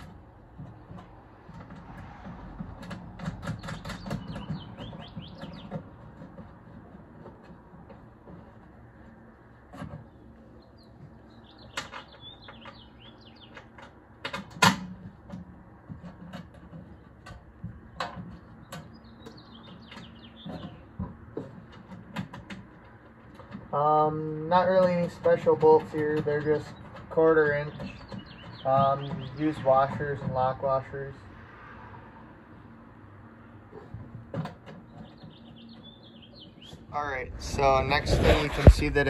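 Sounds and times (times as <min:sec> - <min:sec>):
small birds chirping: 0:02.8 - 0:14.1, 0:16.0 - 0:31.2, 0:32.6 - 0:39.0.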